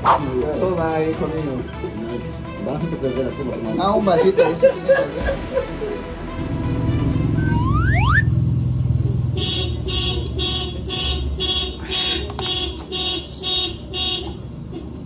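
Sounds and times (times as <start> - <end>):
rising whistle-like glides: 7.3 - 8.4
electronic alarm beeping: 7.4 - 8.3.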